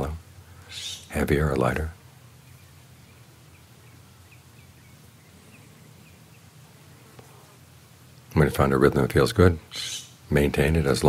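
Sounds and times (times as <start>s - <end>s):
low steady background noise: 0.0s - 11.0s
small bird chirping: 0.6s - 1.2s, 2.4s - 7.2s, 9.7s - 10.2s.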